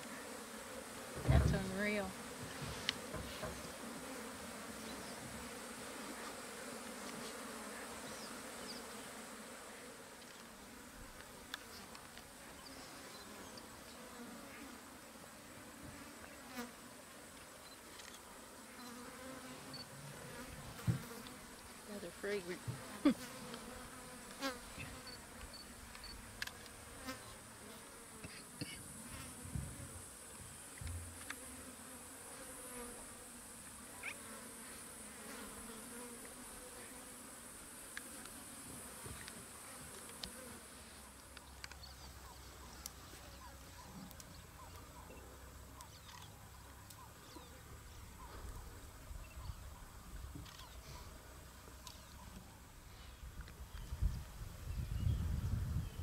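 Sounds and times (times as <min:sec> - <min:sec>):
high insect hiss: 0:00.0 - 0:43.1
flies buzzing: 0:00.0 - 0:56.0.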